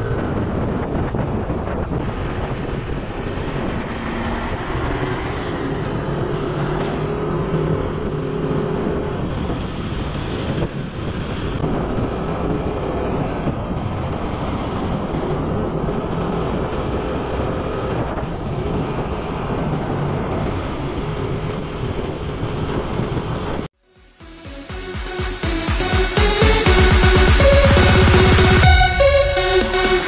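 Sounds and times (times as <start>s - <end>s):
wind and road noise: 0.0s - 23.8s.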